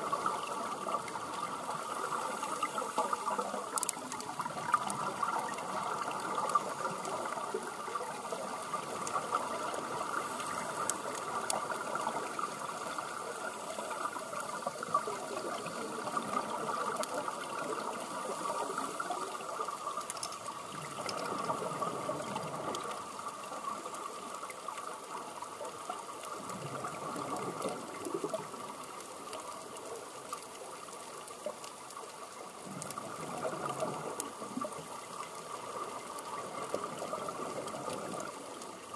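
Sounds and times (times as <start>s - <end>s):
exhaled bubbles: 32.6s - 38.9s.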